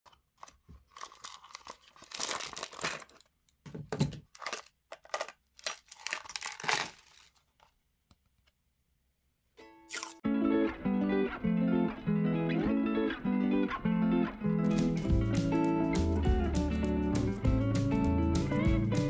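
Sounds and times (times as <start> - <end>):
plastic bin being handled: 0.2 - 7.7
tools clattering in plastic bin: 2.6 - 7.3.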